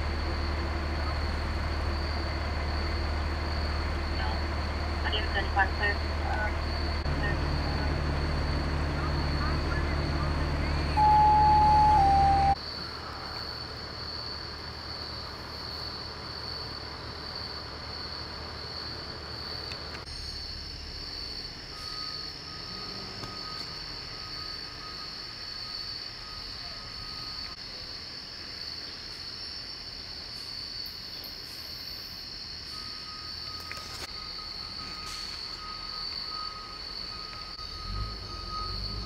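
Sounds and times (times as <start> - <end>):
insects trilling: 0.1 - 39.0
faint steady tone: 8.9 - 13.7, 20.1 - 28.0, 31.1 - 39.0.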